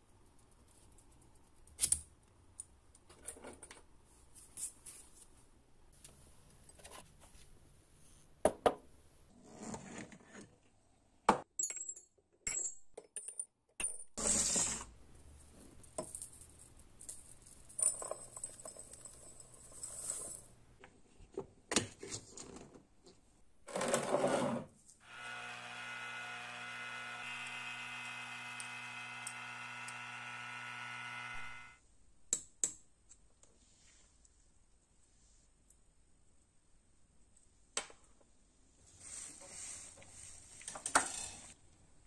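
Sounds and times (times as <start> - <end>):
glass jars and metal parts clinking: 11.6 - 14.8, 16.0 - 20.5
rock tumbler humming: 25.1 - 31.8.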